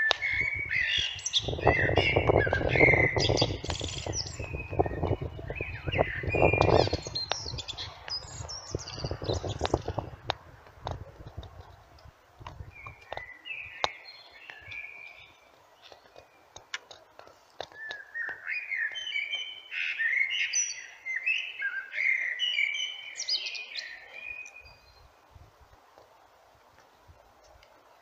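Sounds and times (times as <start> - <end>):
blackbird singing: 0.0 - 10.0, 12.7 - 16.5, 17.7 - 25.0.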